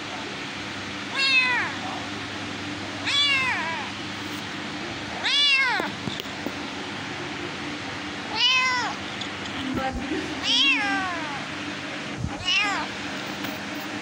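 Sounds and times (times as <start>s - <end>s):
low background hum: 0.0s - 14.0s
kitten meowing: 1.1s - 1.8s, 3.0s - 3.9s, 5.2s - 5.9s, 8.3s - 9.0s, 10.4s - 11.4s, 12.4s - 12.9s.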